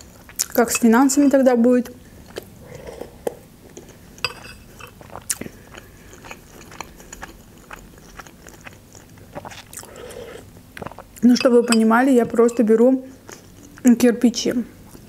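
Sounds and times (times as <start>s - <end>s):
person chewing: 2.2s - 11.9s.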